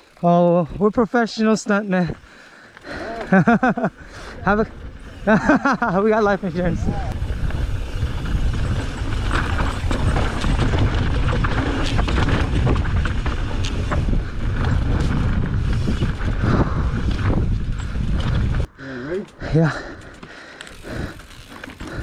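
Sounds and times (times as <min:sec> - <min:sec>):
bike tyres on dirt trail: 0:00.0 - 0:22.0
bike rattling and knocking: 0:04.6 - 0:18.7, 0:19.3 - 0:22.0
wind rumble on microphone: 0:06.4 - 0:18.7.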